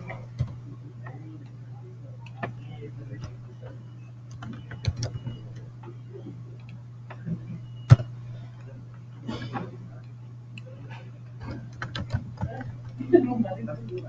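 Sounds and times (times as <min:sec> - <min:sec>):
steady low hum: 0:00.0 - 0:14.0
keyboard keystrokes: 0:04.3 - 0:05.6, 0:11.5 - 0:12.7.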